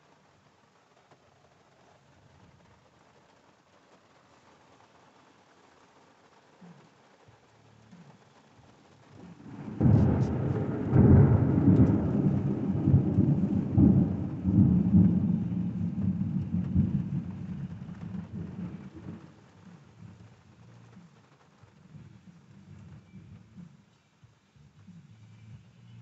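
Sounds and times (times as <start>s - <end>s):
thunder rumbling: 8.0s - 23.7s.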